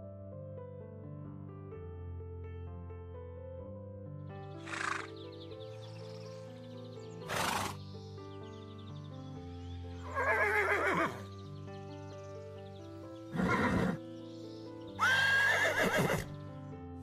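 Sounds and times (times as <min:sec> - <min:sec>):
soft background music: 0:00.0 - 0:17.0
horse whinnying: 0:04.6 - 0:05.1, 0:07.2 - 0:07.8, 0:10.1 - 0:11.3, 0:13.3 - 0:14.0, 0:15.0 - 0:16.4.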